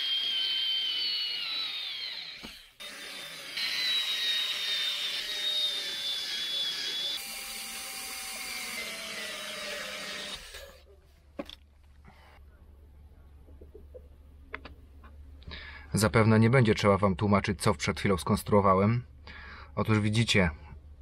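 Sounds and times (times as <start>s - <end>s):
power tool motor whine: 0.0s - 10.8s.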